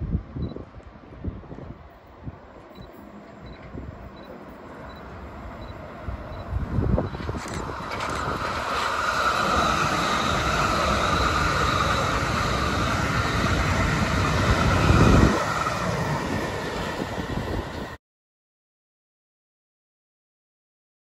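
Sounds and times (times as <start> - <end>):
wheels on rails: 2.5 - 18.0
loud low rumble: 5.6 - 18.0.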